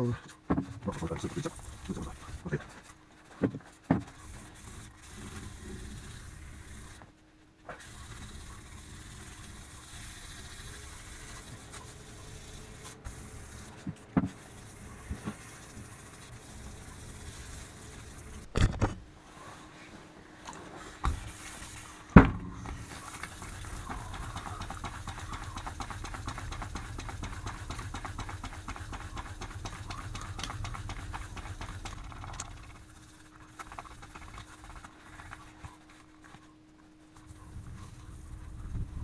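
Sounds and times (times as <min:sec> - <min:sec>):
sandpaper scratching metal: 0:04.1 - 0:07.0, 0:07.7 - 0:18.4, 0:21.2 - 0:36.2.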